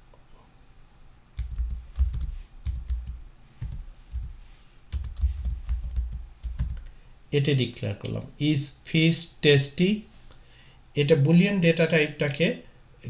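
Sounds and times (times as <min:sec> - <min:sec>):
typing on computer keyboard: 0:01.4 - 0:06.8.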